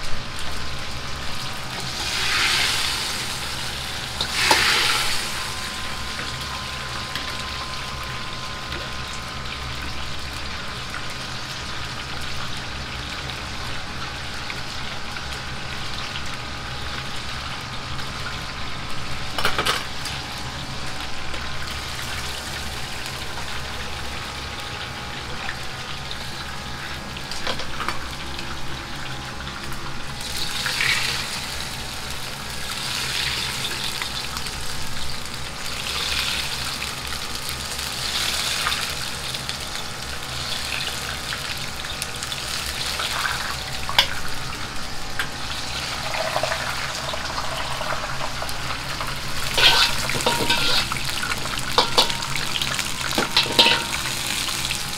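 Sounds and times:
oil sizzling: 0:00.0 - 0:54.9
gas burner rushing: 0:01.1 - 0:10.8, 0:42.7 - 0:54.9
metal ladle scraping wok: 0:04.2 - 0:05.6, 0:49.2 - 0:54.6.

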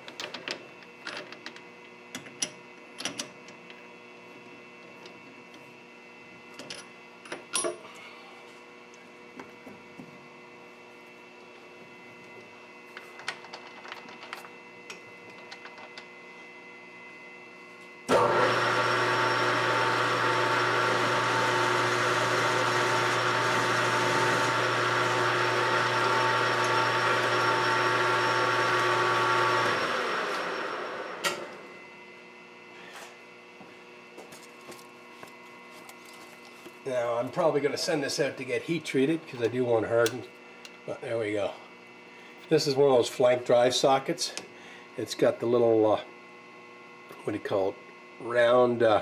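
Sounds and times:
metal lathe running: 0:18.1 - 0:31.6.

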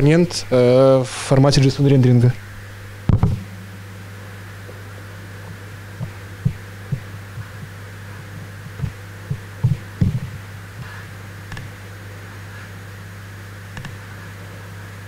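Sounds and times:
low electrical hum: 0:00.0 - 0:15.0
microphone handling bumps: 0:03.1 - 0:03.9, 0:05.5 - 0:10.4.

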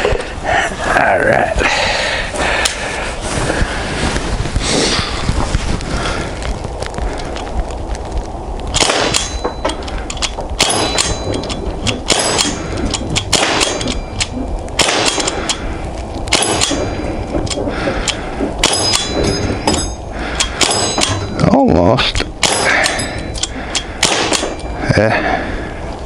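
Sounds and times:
air pistol shots: 0:08.7 - 0:09.4, 0:10.6 - 0:11.2, 0:12.1 - 0:12.6, 0:13.2 - 0:14.0, 0:14.8 - 0:15.5, 0:16.3 - 0:16.8, 0:22.4 - 0:23.0, 0:24.0 - 0:24.6
pellets dinging steel target: 0:10.6 - 0:14.2, 0:18.6 - 0:20.0, 0:20.6 - 0:21.5.

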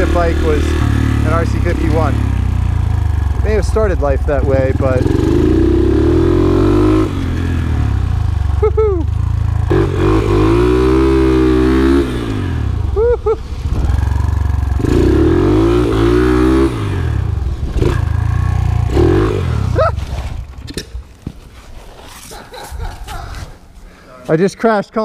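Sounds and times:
motorcycle engine revving: 0:00.0 - 0:20.7
motorcycle crash: 0:19.6 - 0:21.4.

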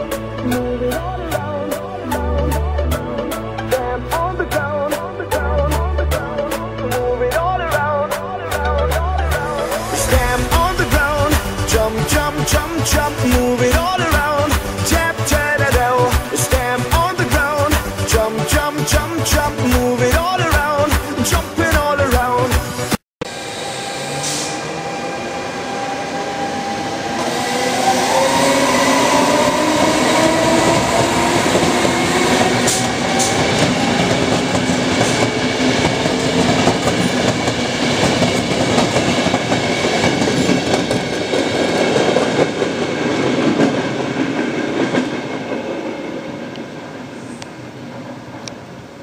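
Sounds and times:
train wheels rolling: 0:09.6 - 0:21.0, 0:24.0 - 0:49.0
train traction motors whining: 0:23.3 - 0:44.0.

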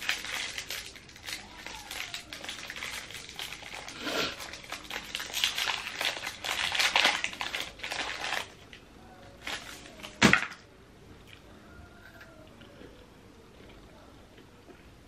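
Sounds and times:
wrapper crinkling: 0:00.0 - 0:10.6.

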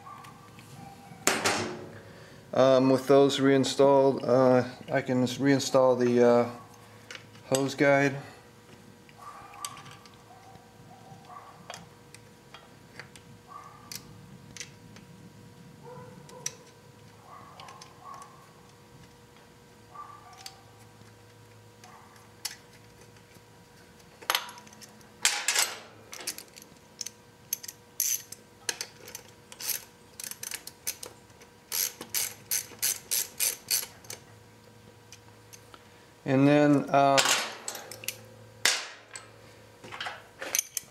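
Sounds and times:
metal parts clicking: 0:24.2 - 0:31.1, 0:31.7 - 0:34.2, 0:36.7 - 0:39.3, 0:40.0 - 0:40.9
ratchet wrench clicking: 0:27.0 - 0:28.4, 0:29.5 - 0:31.0, 0:31.7 - 0:33.9.

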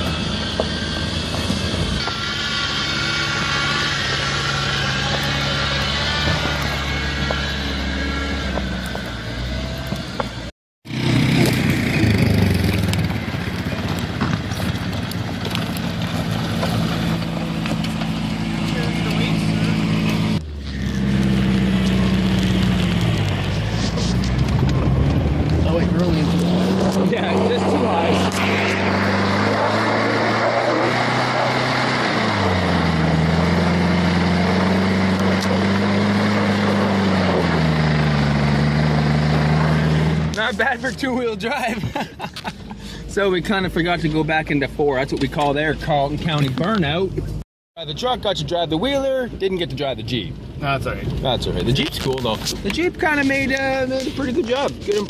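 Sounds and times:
rush of tyre and wind noise: 0:00.0 - 0:17.9, 0:19.9 - 0:40.3
pickup truck engine driving: 0:00.0 - 0:55.0.

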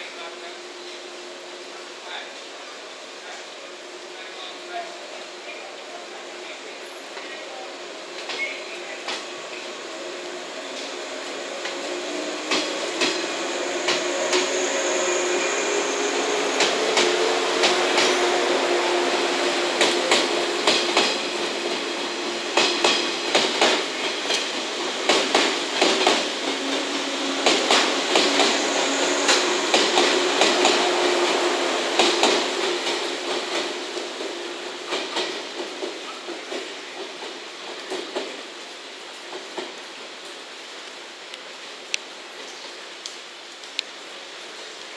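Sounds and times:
electric train hum: 0:00.0 - 0:39.1
train wheels clicking over joints: 0:08.2 - 0:38.4.

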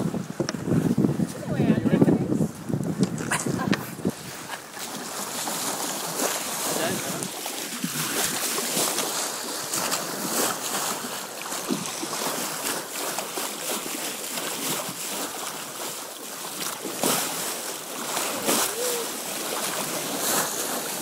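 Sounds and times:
wind buffeting microphone: 0:00.0 - 0:08.8
water rushing along boat hull: 0:00.0 - 0:21.0.

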